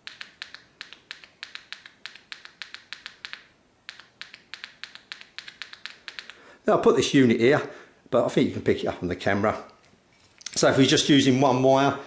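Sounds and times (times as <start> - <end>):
tweeter clicking: 0.0 - 6.4.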